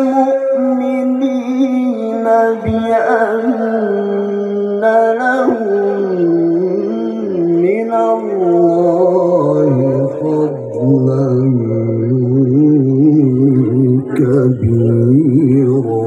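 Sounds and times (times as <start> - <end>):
man chanting through loudspeakers: 0.0 - 16.0.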